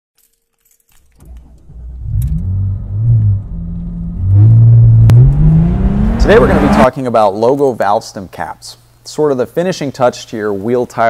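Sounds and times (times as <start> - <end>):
deep engine rumble: 1.2 - 6.9.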